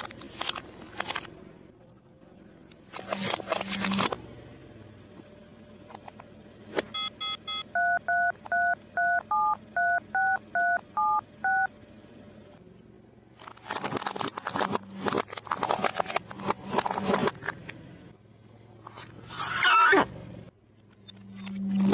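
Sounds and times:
toy telephone keypad beeping: 7.0s - 11.7s.

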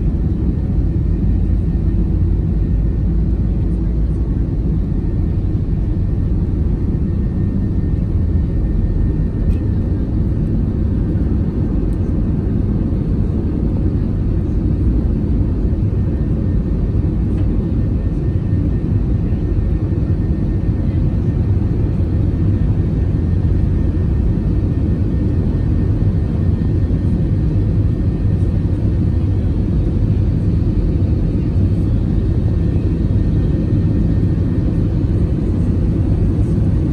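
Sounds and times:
faint high engine whine: 0.0s - 36.9s
jet engines rumbling in cabin: 0.0s - 36.9s.

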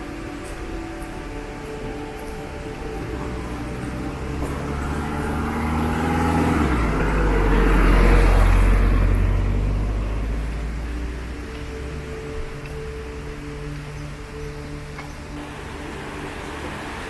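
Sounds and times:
soft background music: 0.0s - 17.0s
car driving past on wet road: 2.8s - 12.2s.

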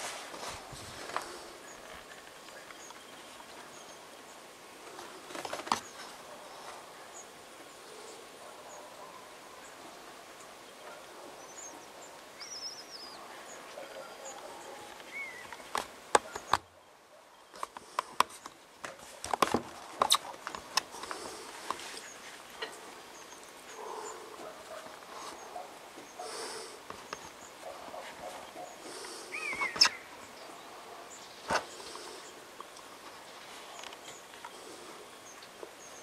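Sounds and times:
steady hiss: 0.0s - 16.5s, 17.6s - 36.0s
faint bird chirps: 5.8s - 17.6s, 22.0s - 36.0s.

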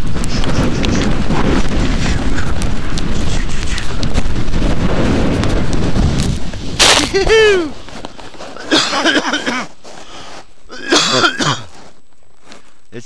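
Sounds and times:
wind noise on microphone: 0.0s - 8.2s
skiers shouting excitedly: 7.0s - 7.8s.

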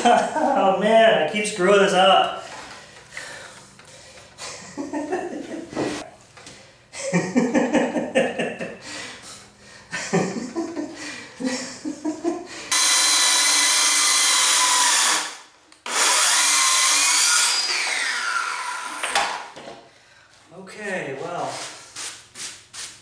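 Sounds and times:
circular saw cutting plywood: 12.7s - 19.5s.

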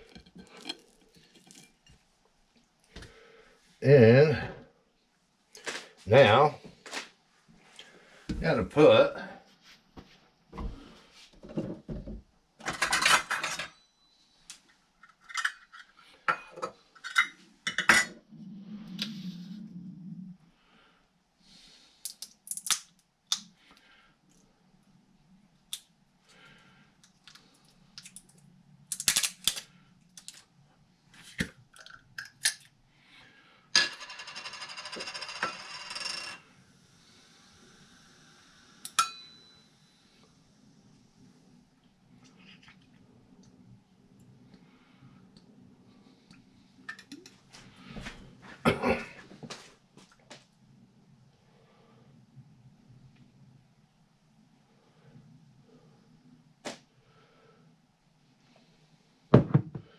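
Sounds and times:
utensils and containers clinking: 12.6s - 13.8s
steady hiss: 36.5s - 41.6s.

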